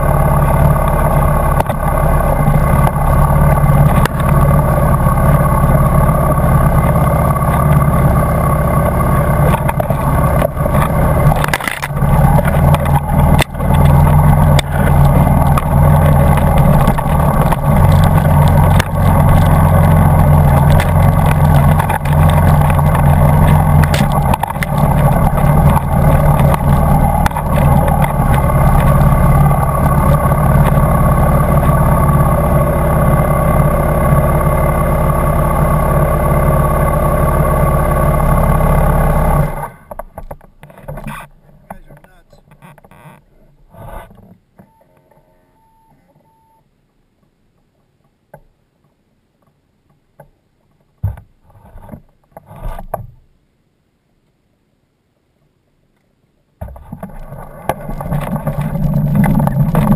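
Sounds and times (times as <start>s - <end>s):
dirt bike engine revving: 0.0s - 39.8s
knocks and rattles over rough ground: 0.0s - 44.7s, 47.2s - 53.2s, 56.6s - 59.9s.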